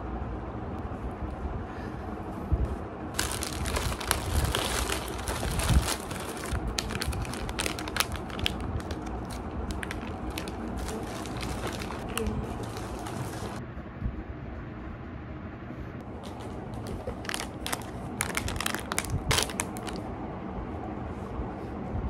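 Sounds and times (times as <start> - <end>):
steady low rumble: 0.0 - 22.0
plastic packaging crinkling: 3.2 - 13.6, 16.2 - 20.0.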